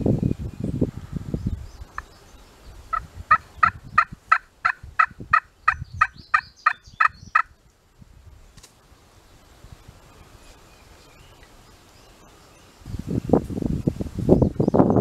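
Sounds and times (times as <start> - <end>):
brush rustling: 7.6 - 14.3.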